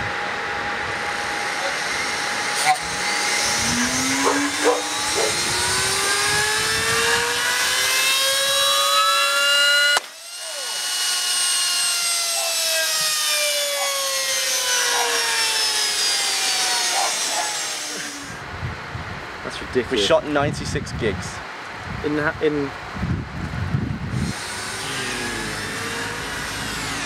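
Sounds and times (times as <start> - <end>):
vacuum cleaner motor whine: 0.0 - 18.5, 23.9 - 27.0.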